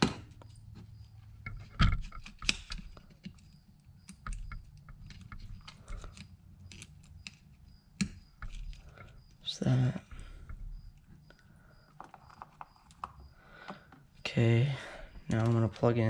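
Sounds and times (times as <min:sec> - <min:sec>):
rustling of wires being handled: 0:00.0 - 0:14.3, 0:15.0 - 0:16.0
clicks of plastic plug connectors: 0:01.5 - 0:07.4.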